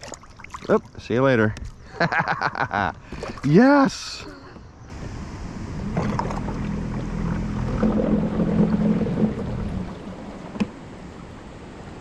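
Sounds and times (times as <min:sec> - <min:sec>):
water washing past hull: 0:04.9 - 0:12.0
electric motor humming: 0:05.0 - 0:09.7.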